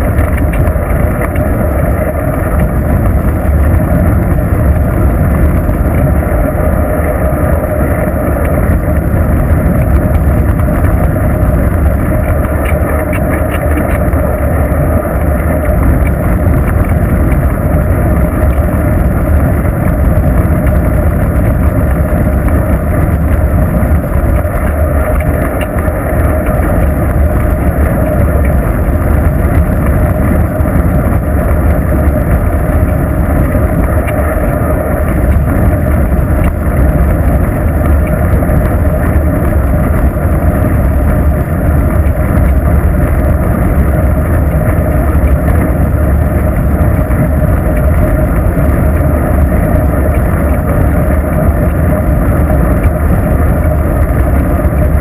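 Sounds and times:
wind rush on microphone: 0:00.0 - 0:55.0.

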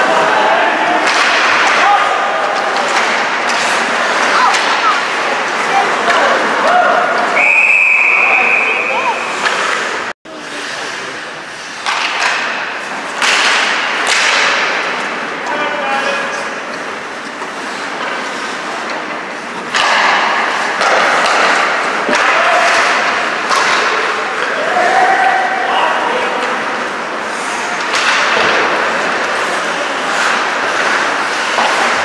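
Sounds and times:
stick and puck knocks: 0:01.0 - 0:01.9, 0:11.8 - 0:14.8, 0:19.6 - 0:24.0
skate blades scraping ice: 0:01.1 - 0:07.4, 0:09.0 - 0:15.7, 0:16.3 - 0:25.0, 0:26.4 - 0:32.0.

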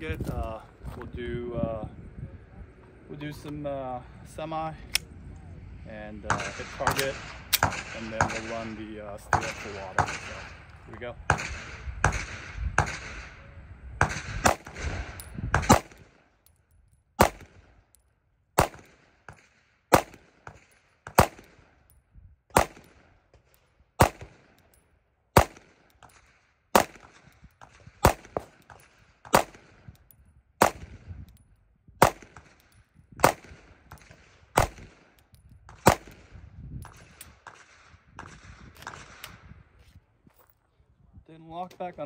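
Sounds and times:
pistol shots: 0:06.3 - 0:10.6, 0:11.3 - 0:13.3, 0:14.0 - 0:16.2, 0:17.2 - 0:17.8, 0:18.6 - 0:21.8, 0:22.5 - 0:23.1, 0:24.0 - 0:24.7, 0:25.3 - 0:30.0, 0:30.6 - 0:31.1, 0:32.0 - 0:39.4.

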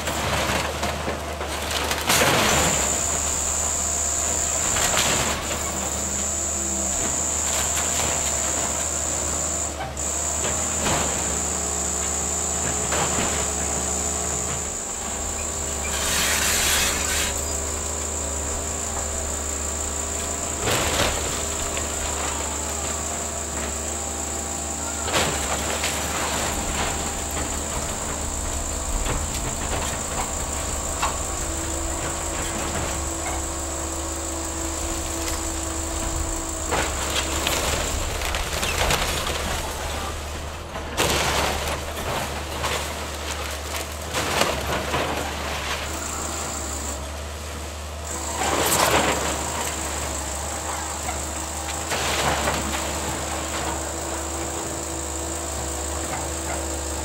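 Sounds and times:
wood and debris crashing: 0:00.0 - 0:47.3
excavator running: 0:00.0 - 0:57.0
high-pitched whine: 0:02.4 - 0:40.6.

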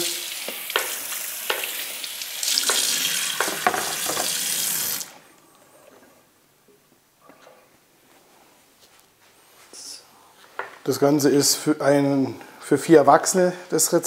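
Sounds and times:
tap running into sink: 0:00.4 - 0:01.8, 0:02.4 - 0:05.0.

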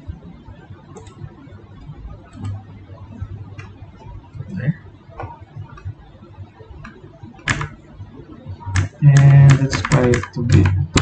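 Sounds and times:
keyboard keys clicking: 0:01.0 - 0:01.2, 0:06.8 - 0:07.8, 0:08.7 - 0:11.0.

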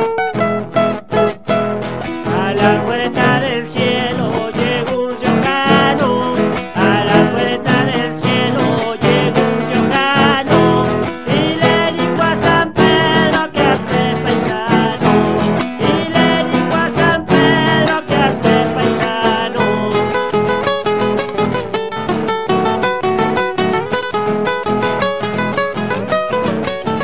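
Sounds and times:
strummed folk guitars: 0:00.0 - 0:27.0
people singing: 0:02.2 - 0:20.6.

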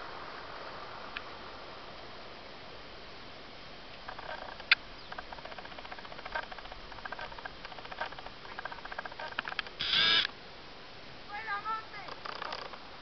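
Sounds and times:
faint ticks: 0:03.9 - 0:10.4, 0:12.0 - 0:12.8
person yelling: 0:11.3 - 0:12.1.

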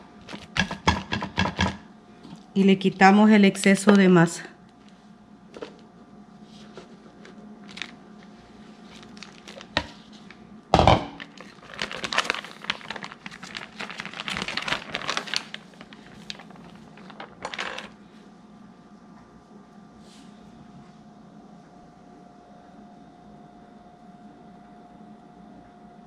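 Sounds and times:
plastic sheet crinkling: 0:06.5 - 0:10.4, 0:11.2 - 0:18.0.

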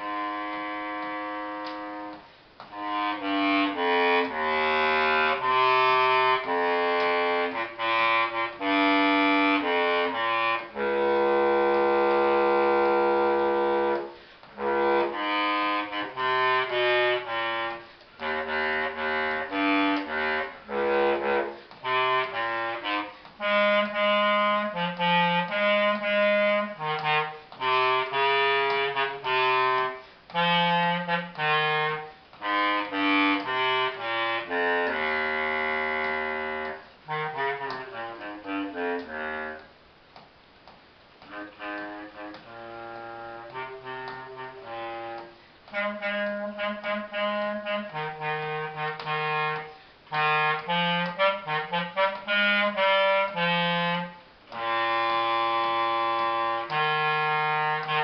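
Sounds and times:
bass clarinet melody: 0:00.0 - 0:58.0.

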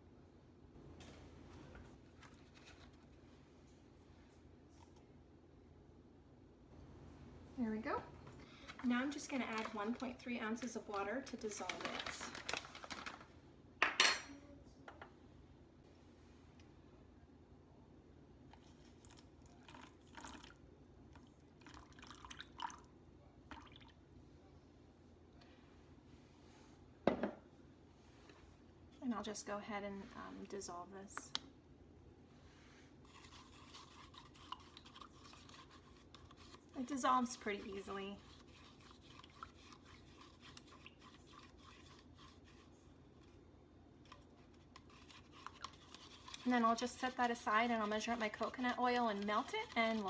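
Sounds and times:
water dripping into a ramekin: 0:19.0 - 0:20.6, 0:21.2 - 0:22.9
utensil scraping in paper cup: 0:33.0 - 0:43.3, 0:44.0 - 0:50.0.

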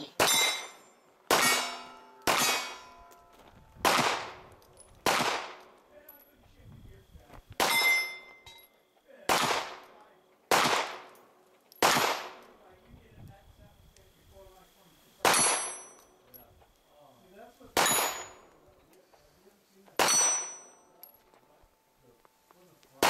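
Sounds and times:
steel plates ringing: 0:00.2 - 0:03.5, 0:07.7 - 0:08.9, 0:15.3 - 0:16.3, 0:20.0 - 0:21.2
handgun shots: 0:01.3 - 0:02.9, 0:03.8 - 0:04.4, 0:05.0 - 0:05.7, 0:07.6 - 0:08.1, 0:10.5 - 0:11.2, 0:11.8 - 0:12.4, 0:15.2 - 0:15.9, 0:20.0 - 0:20.7.

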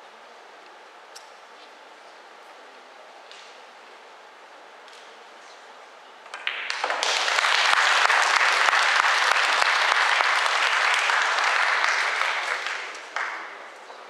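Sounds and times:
audience applause: 0:06.3 - 0:13.8.

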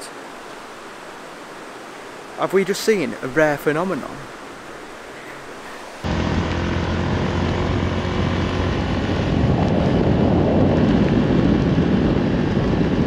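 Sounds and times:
wind rush on microphone: 0:05.8 - 0:13.0
motorbike engine running: 0:06.0 - 0:13.0.

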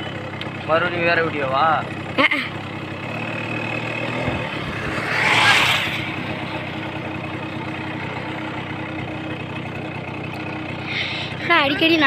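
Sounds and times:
motorcycle engine running: 0:00.0 - 0:12.0
rushing noise: 0:04.0 - 0:07.3.

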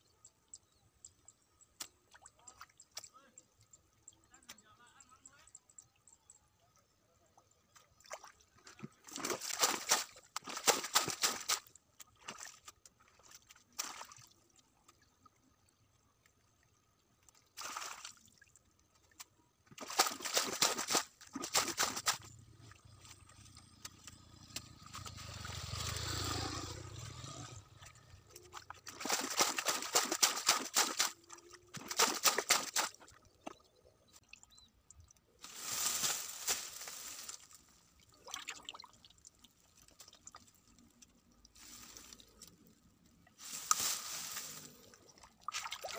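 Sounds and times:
hands splashing in muddy water: 0:08.0 - 0:14.4, 0:19.7 - 0:22.3, 0:28.4 - 0:33.6, 0:43.4 - 0:45.9.

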